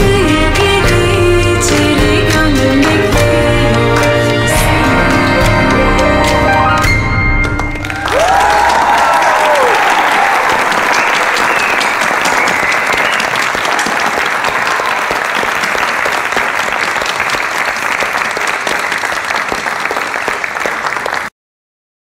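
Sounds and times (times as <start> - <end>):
audience applauding: 3.9 - 21.3.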